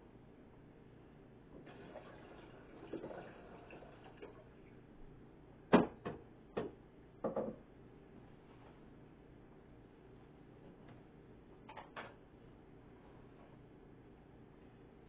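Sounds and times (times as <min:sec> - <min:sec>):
rustling and handling noise: 0:08.1 - 0:09.0, 0:09.8 - 0:13.8.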